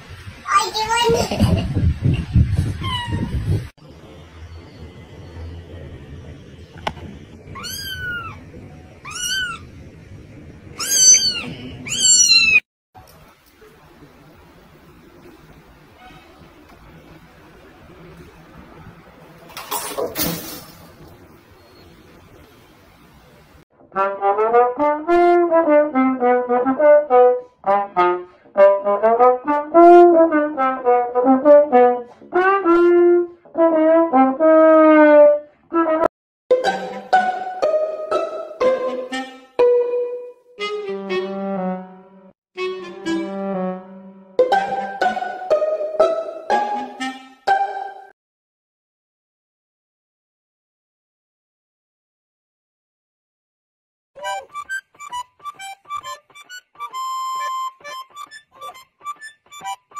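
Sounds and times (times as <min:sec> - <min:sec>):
kitten meowing: 0:02.8 - 0:03.3, 0:07.5 - 0:08.4, 0:09.0 - 0:09.7, 0:10.8 - 0:12.6
brass instrument melody: 0:23.9 - 0:48.1.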